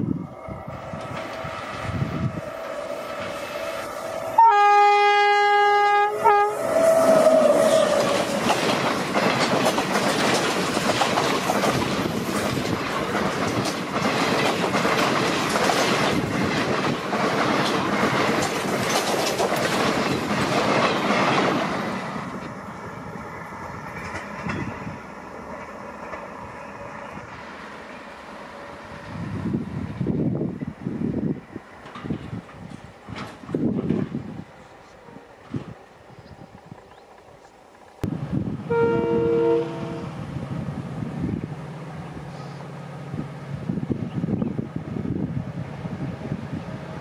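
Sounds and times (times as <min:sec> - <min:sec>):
locomotive horn: 0:03.5 - 0:08.3, 0:38.7 - 0:40.2
train wheels clattering on rails: 0:07.2 - 0:22.6, 0:23.6 - 0:26.6, 0:31.8 - 0:34.7.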